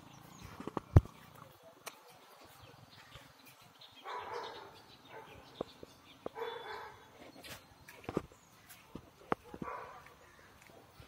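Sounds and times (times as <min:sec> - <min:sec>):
dog barking: 0:04.0 - 0:05.4, 0:06.4 - 0:07.0, 0:09.4 - 0:10.9.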